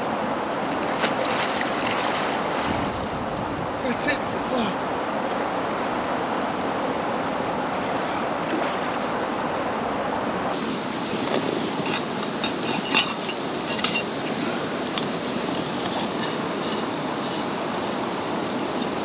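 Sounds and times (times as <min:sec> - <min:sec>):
flowing river water: 0:00.0 - 0:19.0.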